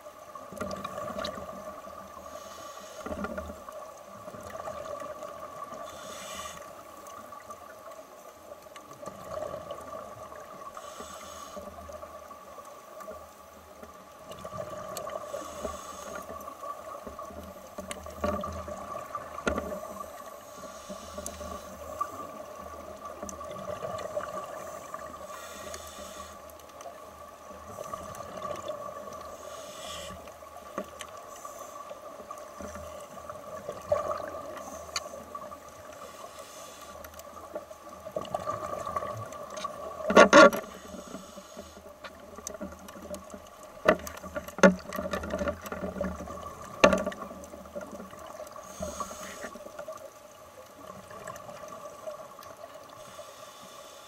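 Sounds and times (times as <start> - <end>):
underwater two-tone hum: 0.0 - 54.0
scuba exhaust bubbles: 27.2 - 50.0.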